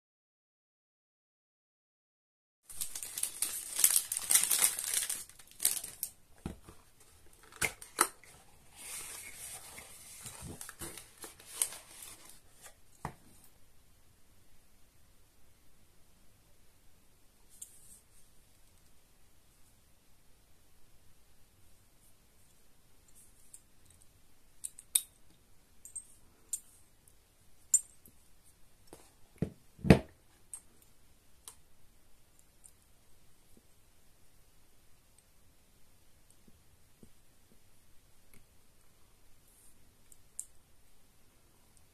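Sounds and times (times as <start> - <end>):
plastic wrap crinkling and tearing: 2.7 - 6.2, 7.3 - 12.4.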